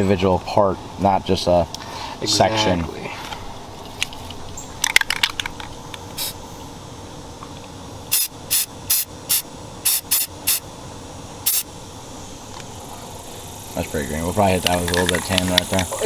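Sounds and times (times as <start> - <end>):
spray can hissing: 6.2 - 6.4, 8.1 - 10.6, 11.4 - 11.7.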